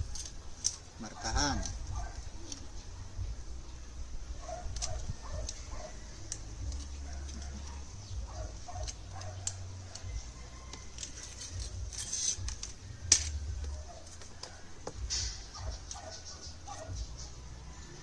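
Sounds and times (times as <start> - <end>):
scratchy rustle: 10.6 - 12.9
pen scraping on aluminium: 10.6 - 14.4
pigeons cooing: 13.6 - 18.0.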